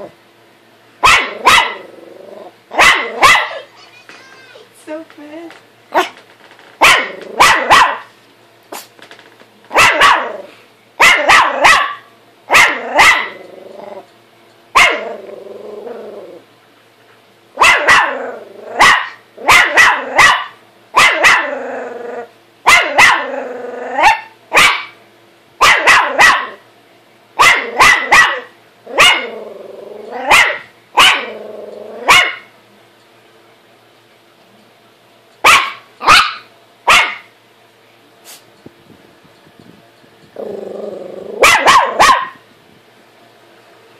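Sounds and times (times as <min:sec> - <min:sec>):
small dog barking: 0:01.0 - 0:01.9, 0:02.7 - 0:03.7, 0:05.9 - 0:06.2, 0:06.8 - 0:08.1, 0:09.7 - 0:13.4, 0:14.8 - 0:15.2, 0:17.6 - 0:18.2, 0:18.8 - 0:21.5, 0:22.6 - 0:23.3, 0:24.0 - 0:25.0, 0:25.6 - 0:26.6, 0:27.4 - 0:29.4, 0:30.3 - 0:31.4, 0:32.0 - 0:32.5, 0:35.4 - 0:37.3, 0:41.4 - 0:42.4
dog growling: 0:01.2 - 0:03.3, 0:12.7 - 0:14.1, 0:14.9 - 0:16.5, 0:18.0 - 0:20.2, 0:21.4 - 0:22.3, 0:23.2 - 0:24.2, 0:28.9 - 0:30.5, 0:31.1 - 0:32.1, 0:40.3 - 0:41.7.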